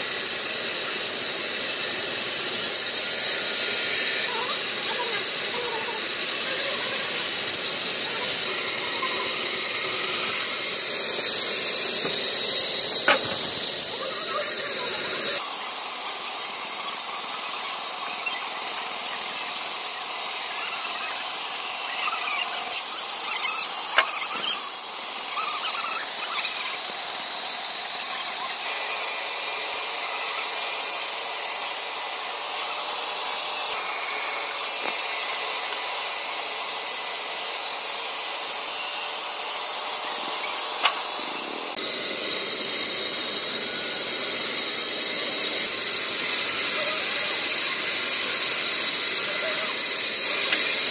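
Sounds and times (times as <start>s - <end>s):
band saw cutting logs: 0.0s - 50.9s
sharp knocks: 13.0s - 13.6s.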